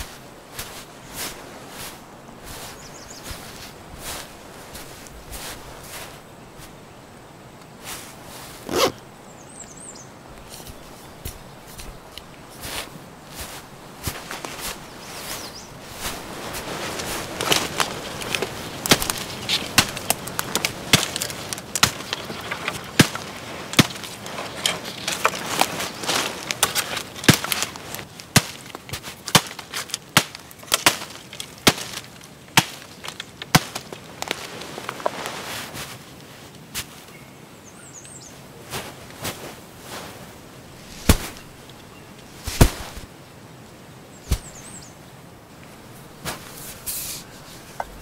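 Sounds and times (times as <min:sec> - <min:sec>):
hatchet chopping branches: 0:17.0 - 0:35.2, 0:41.0 - 0:41.5, 0:42.4 - 0:43.1, 0:44.3 - 0:44.7.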